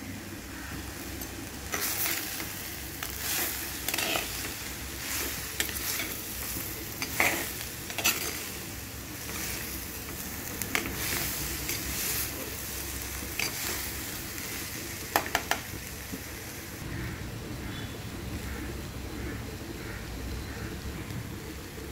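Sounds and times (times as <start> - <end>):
vegetables sizzling in oil: 0.0 - 21.9
spoon scraping clay pot: 3.2 - 4.6, 7.0 - 8.5.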